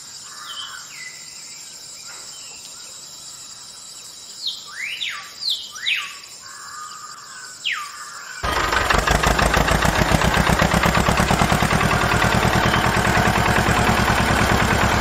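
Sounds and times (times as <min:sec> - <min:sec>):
high insect drone: 0:00.0 - 0:08.4
birds whistling: 0:11.9 - 0:13.6.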